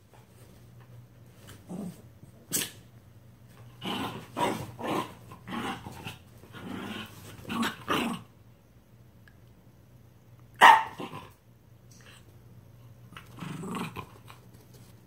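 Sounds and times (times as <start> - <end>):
dogs growling: 3.8 - 8.3, 13.1 - 14.4.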